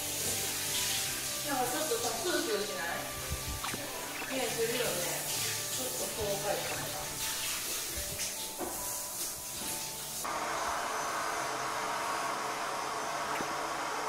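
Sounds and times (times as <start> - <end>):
shower spray hissing: 0.0 - 14.0
hair dryer blowing: 10.2 - 14.0.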